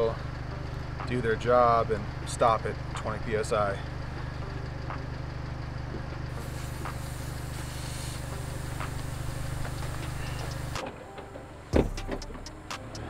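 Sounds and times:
truck engine idling: 0.0 - 13.0
air hissing from tire: 6.3 - 10.8.

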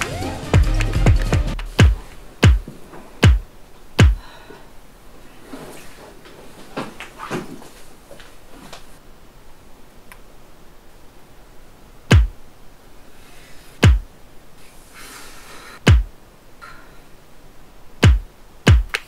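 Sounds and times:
faint knocks and rustles: 5.4 - 9.0.

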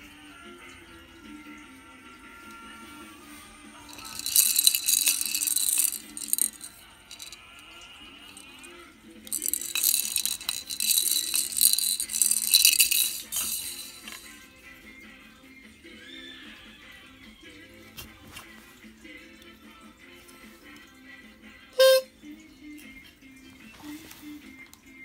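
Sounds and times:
toy maracas rattling: 3.8 - 14.6, 21.8 - 22.1.

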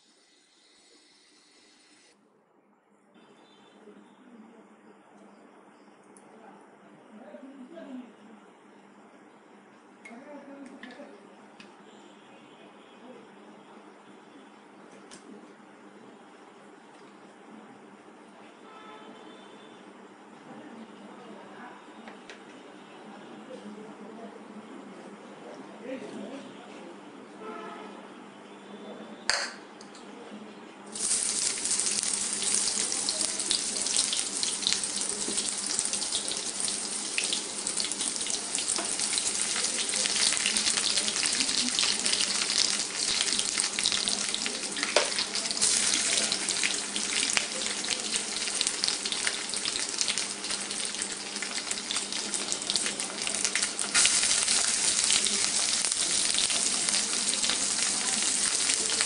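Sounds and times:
onions sizzling in hot oil: 30.9 - 59.0.

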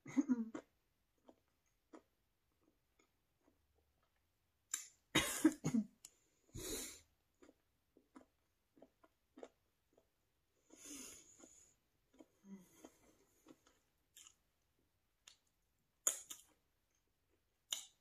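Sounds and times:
woman coughing: 5.2 - 5.9.

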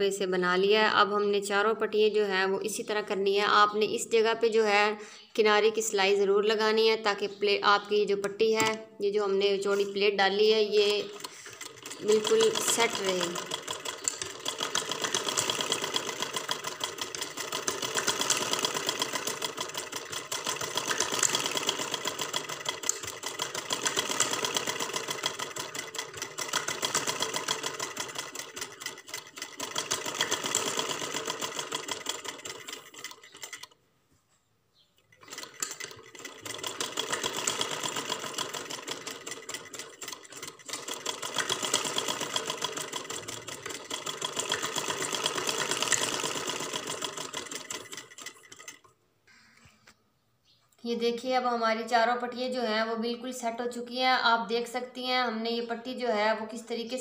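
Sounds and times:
sewing machine stitching: 9.5 - 33.8, 35.1 - 49.0.

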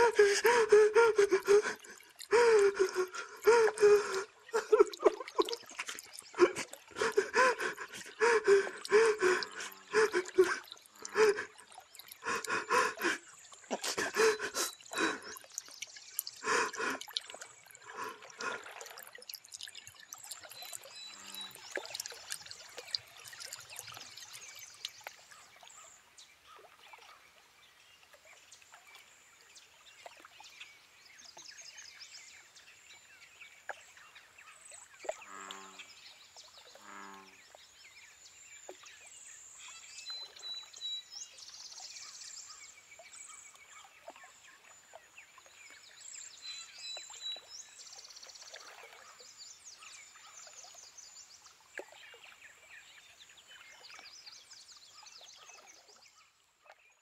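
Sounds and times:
low croaking calls: 0.0 - 18.7, 20.8 - 26.0, 34.5 - 36.0, 36.7 - 37.5.

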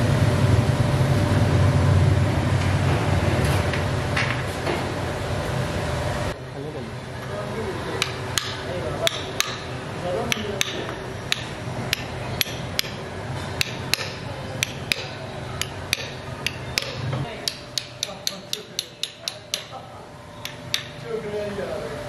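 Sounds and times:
hammer striking steel punch: 8.0 - 9.7, 10.3 - 13.0, 13.6 - 19.7.

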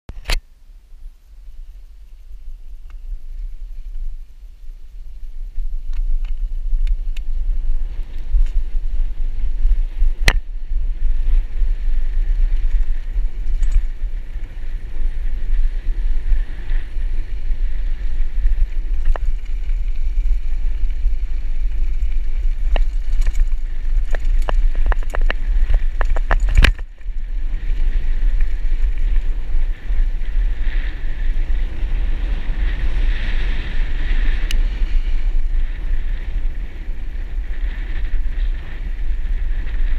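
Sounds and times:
wind buffeting microphone: 1.7 - 39.9
sharp rattles and clicks: 5.7 - 32.2.

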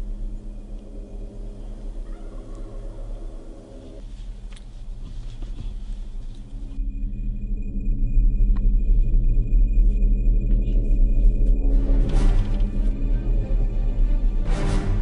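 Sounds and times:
low steady drone: 0.0 - 15.0
turkey gobbling: 2.0 - 3.2.

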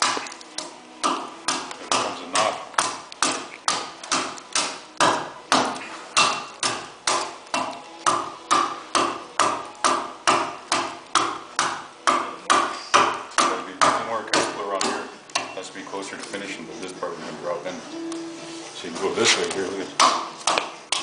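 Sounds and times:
adze chopping wood: 0.0 - 0.4, 1.0 - 15.6, 20.0 - 21.0.

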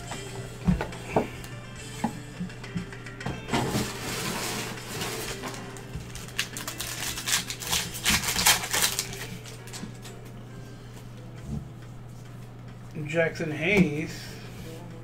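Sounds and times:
foil wrapper crinkling: 3.7 - 10.2.

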